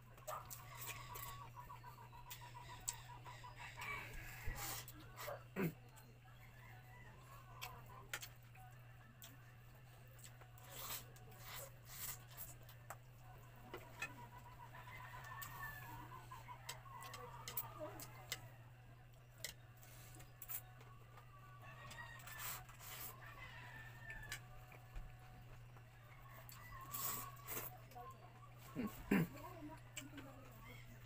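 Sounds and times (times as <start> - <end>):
chewing: 7.6 - 13.1, 19.4 - 20.9.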